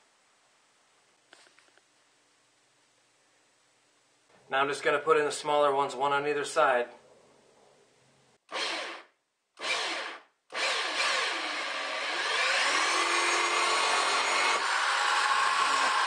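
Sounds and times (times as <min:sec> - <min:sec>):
cordless drill cutting plastic: 0:08.5 - 0:16.0.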